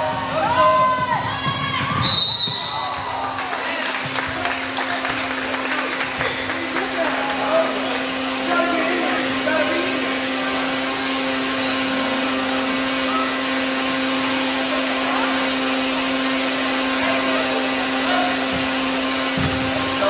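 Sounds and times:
mechanical drone hum: 4.0 - 20.0.

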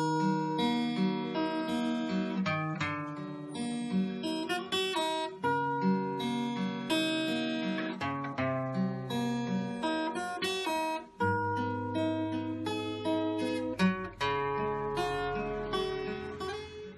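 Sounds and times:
acoustic guitar melody: 0.0 - 16.9.

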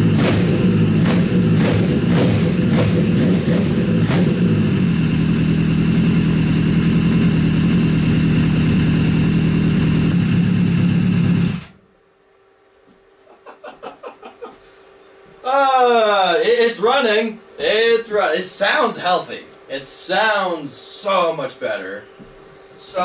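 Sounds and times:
motorcycle engine idling: 0.0 - 11.6.

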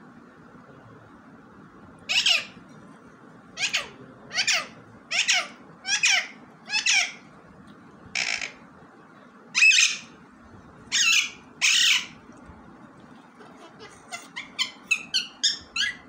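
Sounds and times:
parakeet harsh calls: 2.1 - 2.6, 3.6 - 7.3, 8.1 - 8.6, 9.5 - 10.2, 10.9 - 12.2, 13.4 - 16.0.

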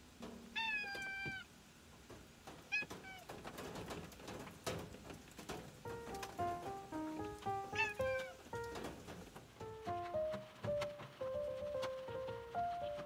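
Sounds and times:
cat meowing: 0.5 - 1.5, 7.7 - 8.4
soft music notes: 5.8 - 13.0.

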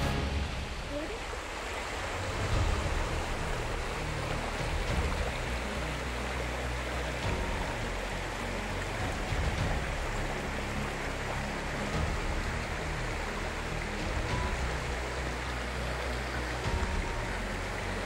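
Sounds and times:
water rushing over stones: 0.0 - 18.0.

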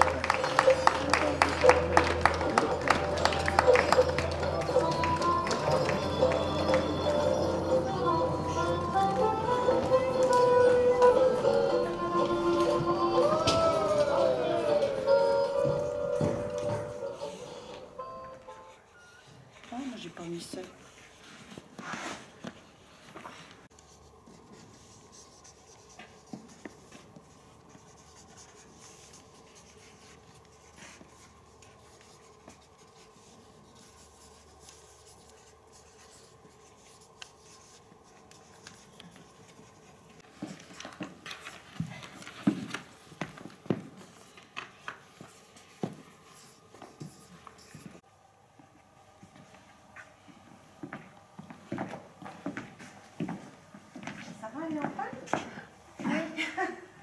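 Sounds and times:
faint room hum: 0.0 - 57.0
marker pens scratching on paper: 23.3 - 48.0.

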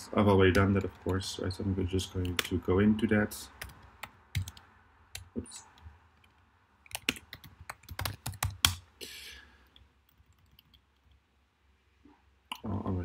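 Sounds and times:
typing on computer keyboard: 3.6 - 4.6, 6.2 - 8.8, 10.1 - 11.2.

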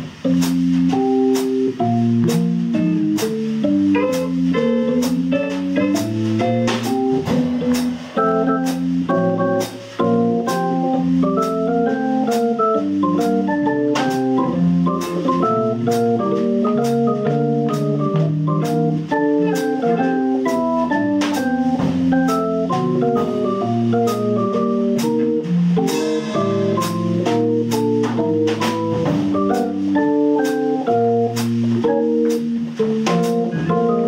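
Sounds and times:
drum kit cymbal strokes: 0.0 - 34.0
electric guitar: 0.0 - 34.0
keyboard organ chords: 0.0 - 34.0.

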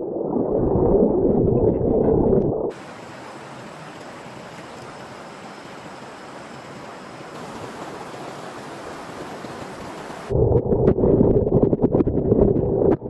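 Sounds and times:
stream rushing: 2.7 - 10.3.

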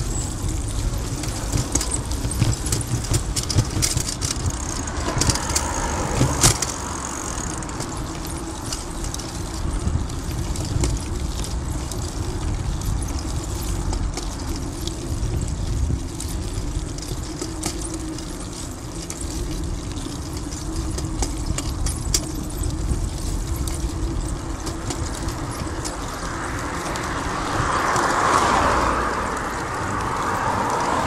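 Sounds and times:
rattling clicks: 0.0 - 11.6
bicycle rolling on pavement: 0.0 - 31.0.

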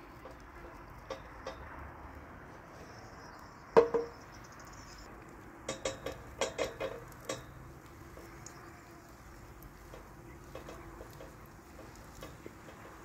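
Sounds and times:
wooden spatula knocking metal pan: 3.8 - 4.2.

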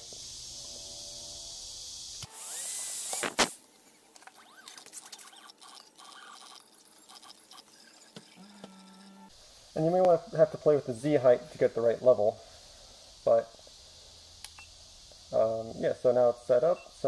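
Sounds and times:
cordless drill whining: 2.1 - 3.4
drill sharp click: 2.2 - 3.6.

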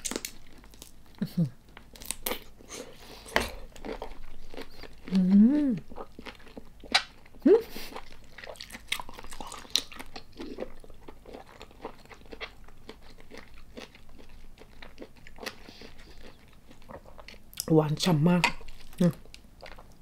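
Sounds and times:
chewing prawn mouth noise: 1.9 - 17.8.

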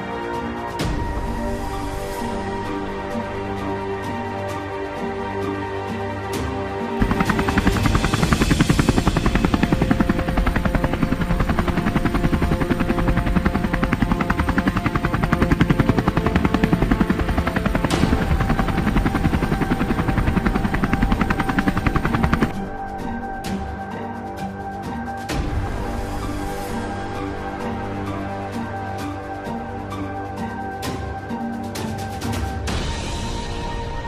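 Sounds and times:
background music: 0.0 - 34.0
helicopter rotor beating: 7.0 - 23.0.

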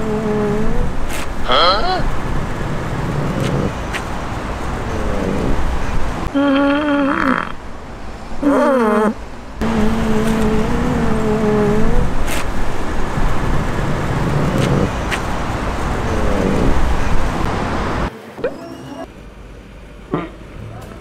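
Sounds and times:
street traffic noise: 0.0 - 21.0
fart sound through speaker: 9.6 - 12.5, 14.5 - 14.9.

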